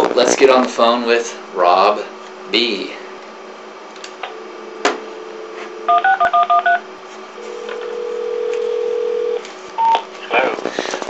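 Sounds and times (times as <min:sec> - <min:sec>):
telephone ringback tone: 0:04.3 - 0:06.8, 0:07.4 - 0:10.0
telephone dial tone: 0:05.5 - 0:06.8, 0:07.6 - 0:10.0
touch-tone keypad beeps: 0:05.9 - 0:06.8.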